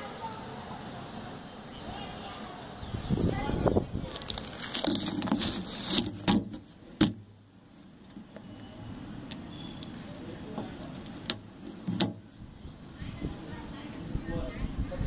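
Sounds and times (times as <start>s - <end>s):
handling knocks and clicks: 4.1s - 7.3s, 8.0s - 12.3s.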